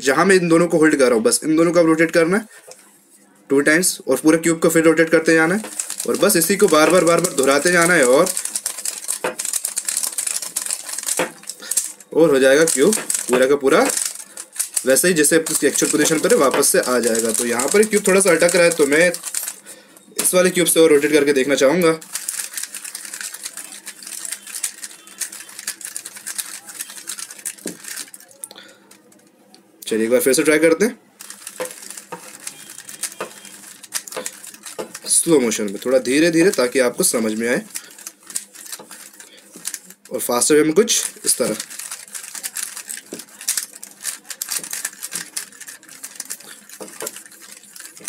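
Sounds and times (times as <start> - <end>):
puzzle cube clicking as turned: 5.4 - 19.6, 22.1 - 28.3, 31.2 - 40.1, 41.0 - 48.0.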